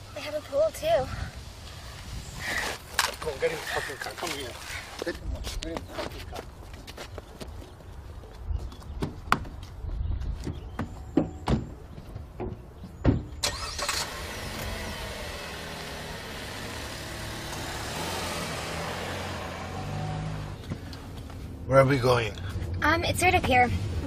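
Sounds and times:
car engine passing by: 0:13.4 - 0:21.1.

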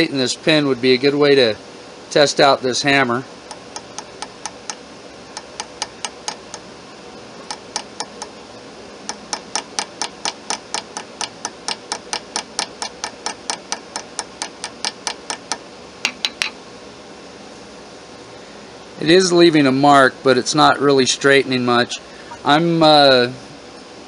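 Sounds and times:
small hammer tapping metal pin: 0:03.5 - 0:04.8, 0:07.5 - 0:08.3, 0:09.1 - 0:16.5.

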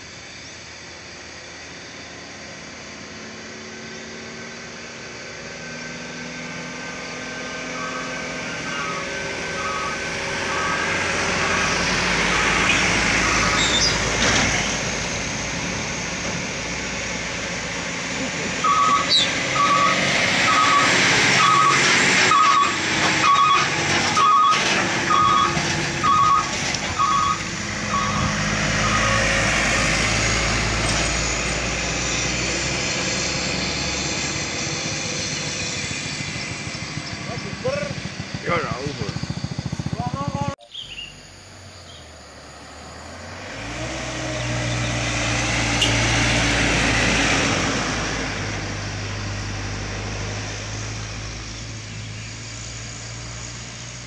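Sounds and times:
diesel trucks climbing uphill: 0:00.0 - 0:54.0
two-tone electronic warning beeper: 0:07.8 - 0:13.9, 0:18.6 - 0:29.2.

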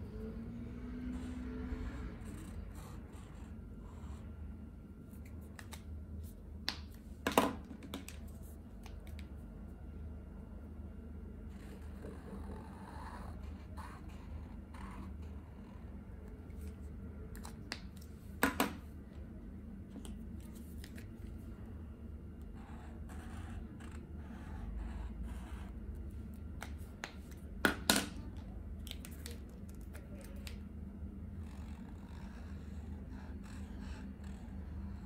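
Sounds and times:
marker nib scratching on paper: 0:11.5 - 0:16.8, 0:22.4 - 0:26.0, 0:31.4 - 0:35.0.

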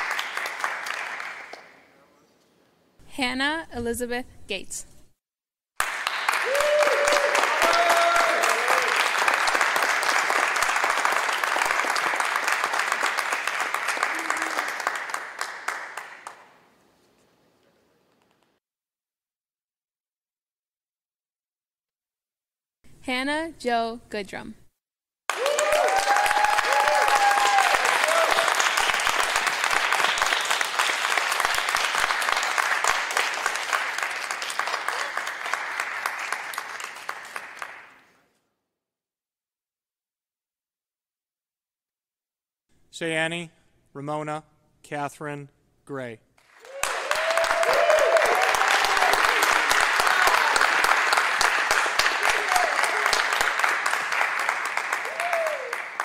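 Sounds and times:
audience applauding: 0:00.0 - 0:01.9, 0:05.8 - 0:16.7, 0:25.3 - 0:38.2, 0:46.4 - 0:56.0.

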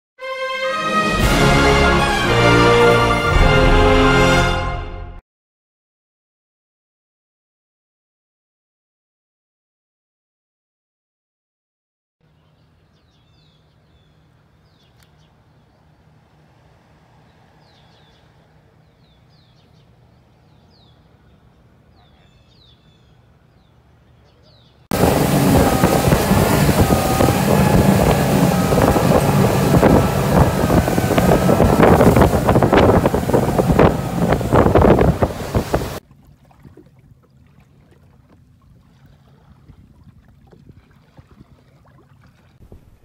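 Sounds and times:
wind noise on microphone: 0:24.9 - 0:36.0, 0:39.6 - 0:41.6, 0:42.6 - 0:43.0
outboard motor running: 0:24.9 - 0:43.0
water splashing: 0:24.9 - 0:43.0.

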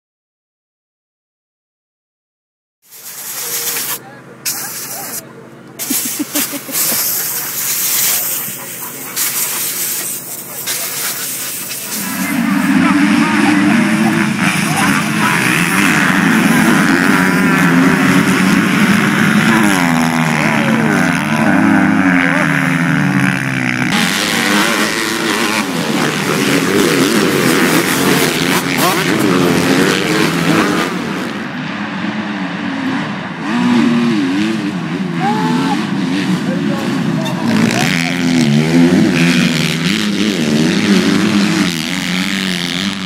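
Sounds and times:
motocross bikes revving: 0:02.9 - 0:43.0.

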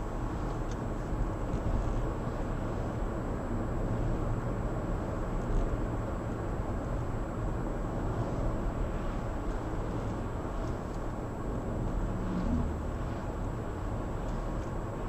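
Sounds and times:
road and tyre noise: 0:00.0 - 0:15.0
passing vehicles swishing: 0:07.9 - 0:15.0.

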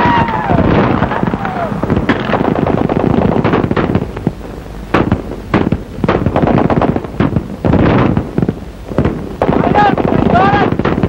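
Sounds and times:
constant rushing noise: 0:00.0 - 0:11.0
gunfire and explosions: 0:00.0 - 0:11.0.

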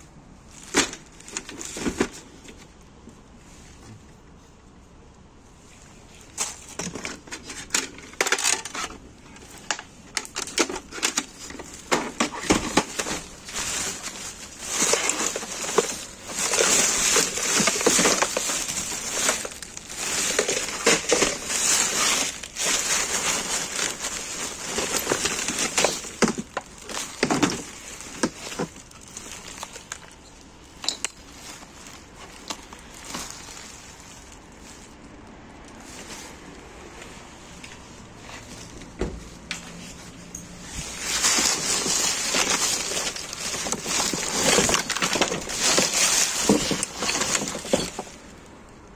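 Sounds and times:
plastic bags crinkling: 0:00.4 - 0:02.8, 0:05.9 - 0:36.6, 0:37.6 - 0:48.9.

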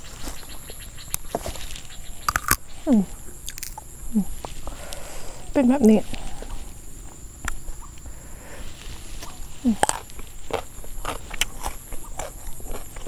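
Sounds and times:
person chewing crunchy food: 0:00.0 - 0:05.0, 0:07.4 - 0:13.0
mouth clicks: 0:02.2 - 0:03.9.

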